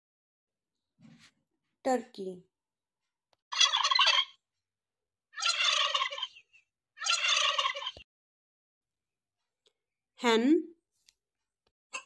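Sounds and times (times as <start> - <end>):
turkey gobbling: 3.5 - 4.3, 5.4 - 6.4, 7.0 - 8.0.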